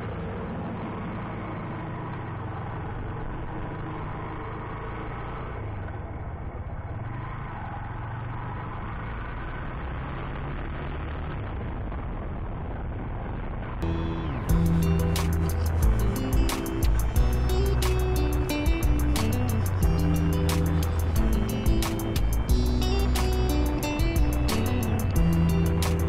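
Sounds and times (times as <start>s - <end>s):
wind and road noise: 0.0s - 26.0s
motorcycle engine running: 13.8s - 26.0s.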